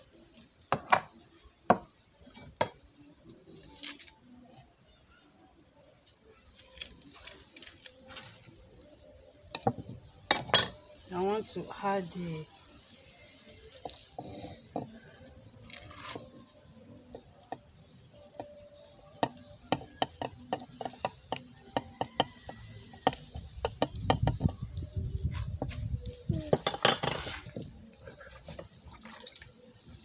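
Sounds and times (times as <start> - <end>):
dishes and utensils clinking: 0.7 - 3.0, 9.5 - 10.9, 26.5 - 27.5.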